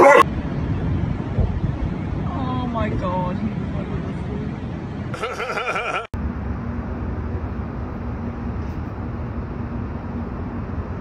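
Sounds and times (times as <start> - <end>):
distant traffic rumble: 0.0 - 11.0.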